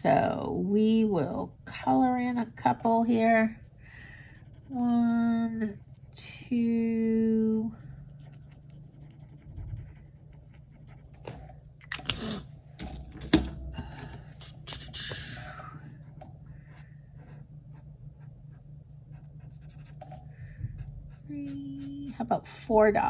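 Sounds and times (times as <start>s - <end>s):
marker scratching on paper: 8.0s - 11.4s, 14.4s - 15.3s, 16.7s - 20.2s, 20.8s - 22.3s.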